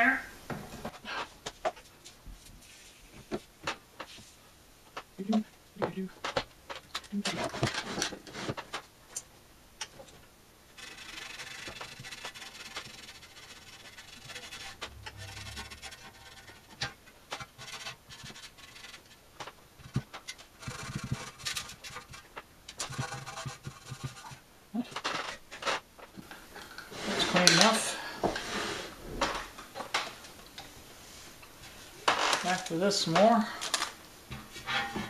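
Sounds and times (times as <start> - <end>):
cloth rag wiping metal: 10.8 - 16.8.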